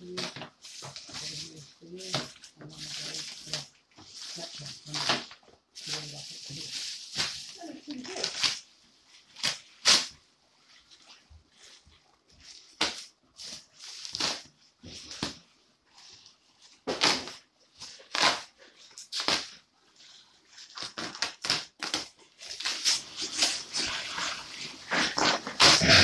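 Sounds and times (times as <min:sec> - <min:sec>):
bubble wrap crinkling: 0:00.0 - 0:26.0.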